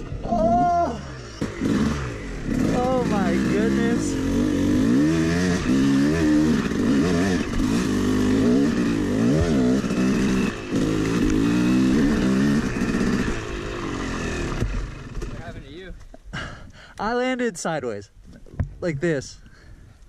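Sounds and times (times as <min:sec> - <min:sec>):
dirt bike engine revving: 0:00.0 - 0:15.7.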